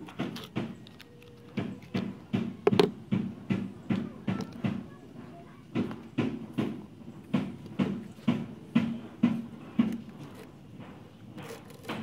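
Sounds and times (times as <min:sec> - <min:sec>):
lever cutter chopping rubber: 0:00.0 - 0:03.0, 0:11.1 - 0:12.0.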